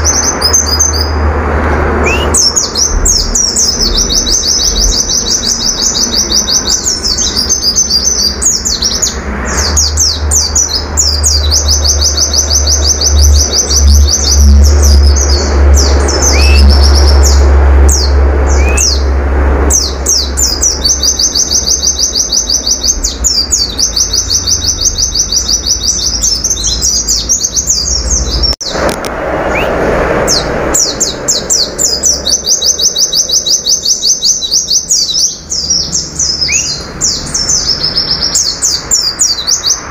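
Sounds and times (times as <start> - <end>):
bird chirps: 0.0 - 1.3, 2.0 - 28.9, 29.5 - 39.9
bird singing rapid high notes: 0.0 - 28.9, 29.5 - 39.9
low rumble: 1.1 - 7.2, 9.2 - 21.0.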